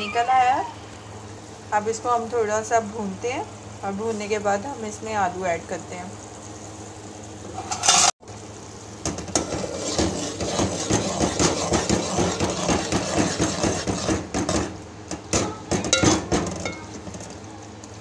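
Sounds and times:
oil frying hiss: 0:00.3 - 0:15.4
spoon scraping a pan: 0:07.5 - 0:08.1, 0:09.4 - 0:14.7.

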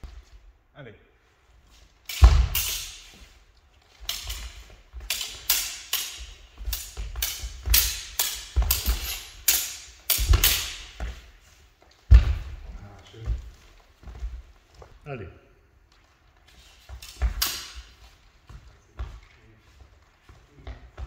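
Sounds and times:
steel blades clashing: 0:02.1 - 0:03.1, 0:04.1 - 0:11.0
footwork thuds on wooden floor: 0:02.2 - 0:03.3, 0:06.2 - 0:11.4, 0:12.0 - 0:15.0.

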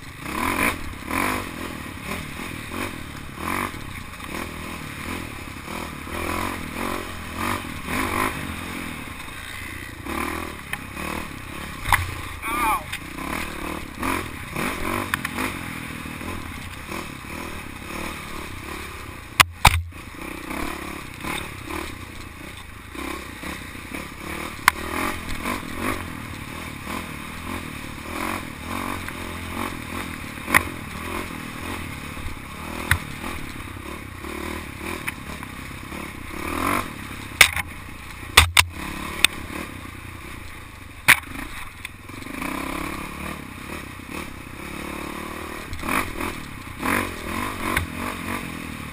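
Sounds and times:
clatter and scraping from riding: 0:00.0 - 0:48.9
dirt bike engine revving: 0:00.0 - 0:48.9
sharp knocks: 0:19.4 - 0:19.9, 0:38.4 - 0:38.7.

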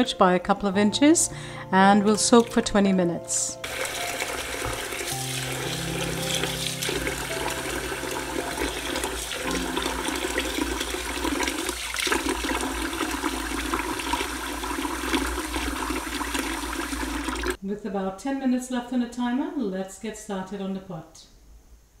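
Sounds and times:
tap water pouring into glass bowl: 0:03.6 - 0:17.6.

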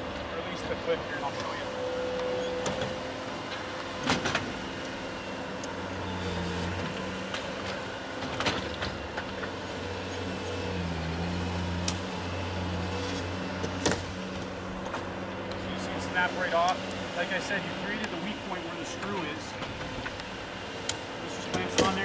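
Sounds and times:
engine running: 0:00.0 - 0:22.0.

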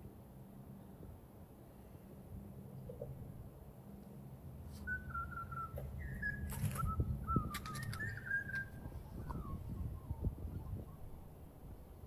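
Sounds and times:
clear whistled notes: 0:04.8 - 0:11.0
sharp clicks: 0:06.5 - 0:08.7.

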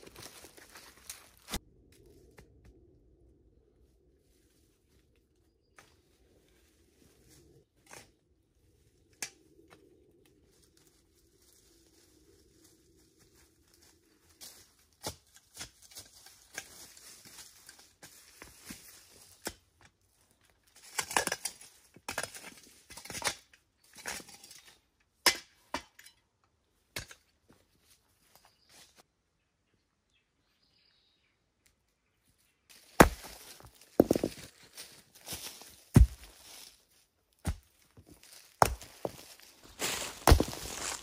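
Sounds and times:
hand digging in soil: 0:37.5 - 0:41.0.

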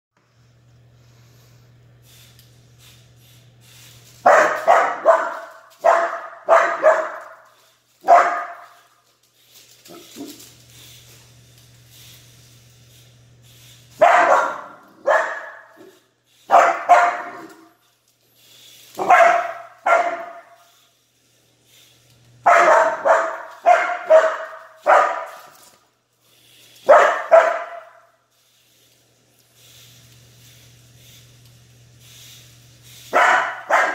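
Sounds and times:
steady low hum: 0:00.2 - 0:33.9
puppy barking: 0:04.2 - 0:07.4, 0:08.0 - 0:08.8, 0:14.0 - 0:17.7, 0:19.0 - 0:20.6, 0:22.4 - 0:25.5, 0:26.9 - 0:28.1, 0:33.1 - 0:33.9.

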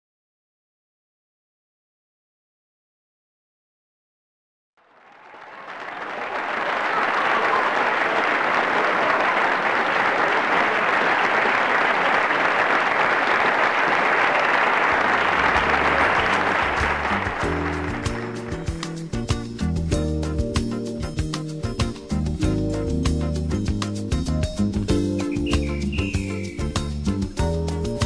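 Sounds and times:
crowd applause: 0:04.8 - 0:19.2, 0:25.3 - 0:26.7
music with stepping bass line: 0:17.4 - 0:28.0.

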